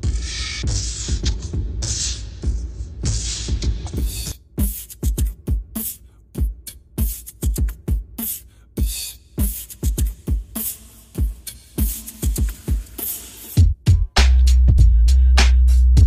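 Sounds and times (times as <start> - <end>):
background music with drum beat: 0.0 - 16.0
hi-hat hits: 0.0 - 16.0
kick drum thumps: 2.4 - 5.8, 6.4 - 8.2, 8.8 - 10.6, 13.6 - 14.2.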